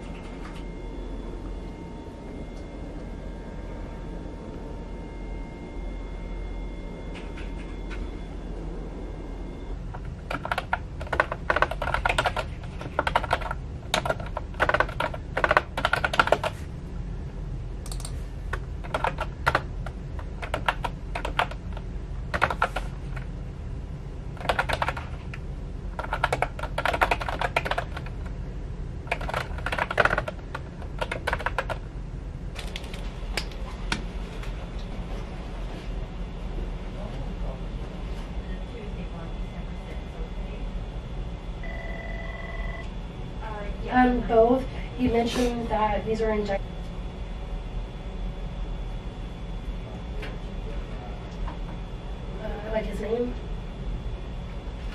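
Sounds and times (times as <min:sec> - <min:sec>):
steady low hum: 0:00.0 - 0:54.9
keyboard key clicks: 0:17.8 - 0:19.6.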